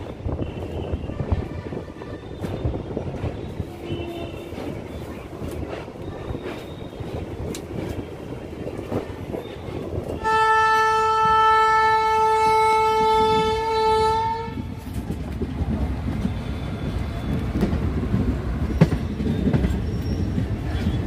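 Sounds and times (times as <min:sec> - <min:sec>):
train rumble and clatter: 0:00.0 - 0:21.0
train horn blast: 0:03.6 - 0:04.6, 0:10.2 - 0:14.8.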